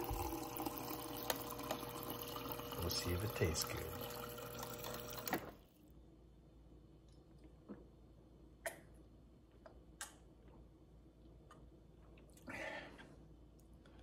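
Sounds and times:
man breathing out: 12.4 - 13.1.

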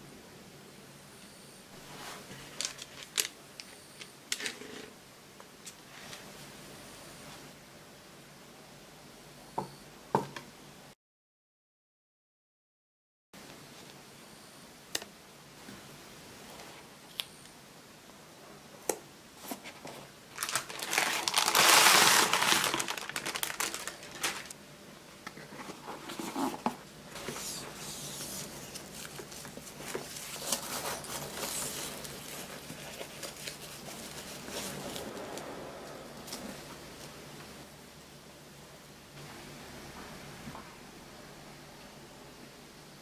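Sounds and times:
stiff paper crinkling and rustling: 2.0 - 3.4, 19.4 - 24.6, 25.3 - 35.2.

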